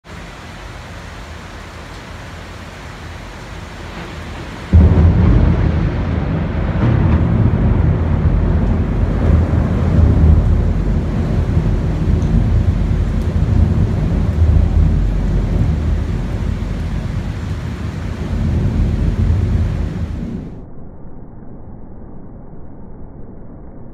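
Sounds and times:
heavy rain: 0:00.0 - 0:20.6
loud thunderclap with rumble: 0:03.6 - 0:20.6.

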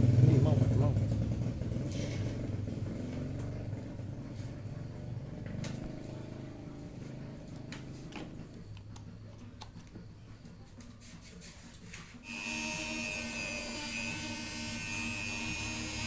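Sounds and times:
grinder motor humming: 0:12.3 - 0:16.0.

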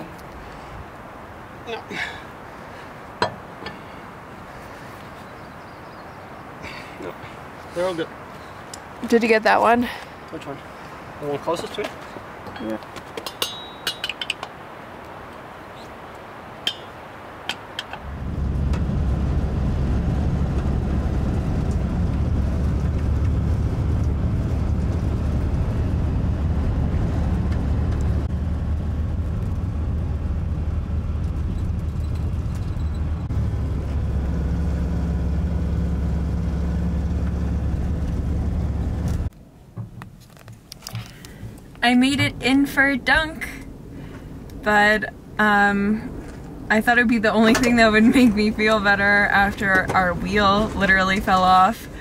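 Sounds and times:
road noise: 0:00.0 - 0:52.0
tools clinking: 0:12.5 - 0:14.5
van engine droning: 0:18.0 - 0:39.3.

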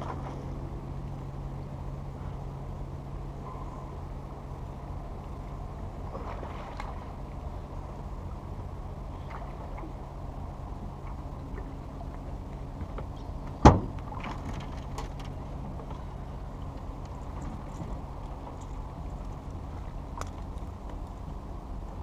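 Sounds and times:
low rumble and hum: 0:00.0 - 0:22.0
sharp thump on metal boat: 0:13.6 - 0:14.4.

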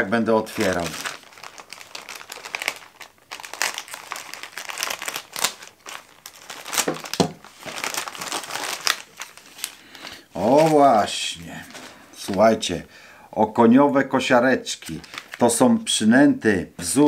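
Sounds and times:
plastic bag crinkling: 0:00.2 - 0:12.6, 0:14.8 - 0:15.6
plastic bag tearing: 0:00.4 - 0:12.5, 0:14.8 - 0:15.6.

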